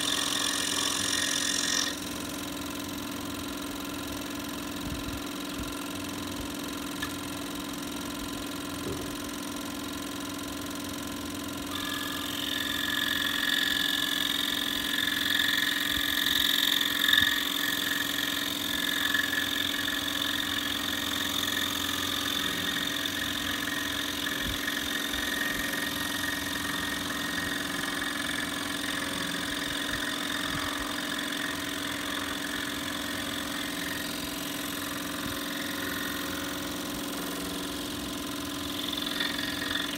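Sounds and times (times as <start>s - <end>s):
saw blade cutting wood: 0.0s - 3.0s, 11.6s - 39.9s
scroll saw motor humming: 0.0s - 39.9s.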